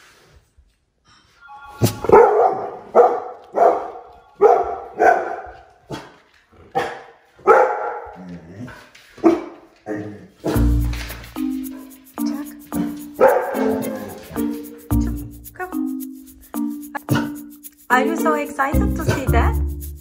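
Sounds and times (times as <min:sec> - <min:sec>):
dog barking excitedly: 0:02.0 - 0:08.3, 0:09.2 - 0:10.7, 0:12.9 - 0:14.9.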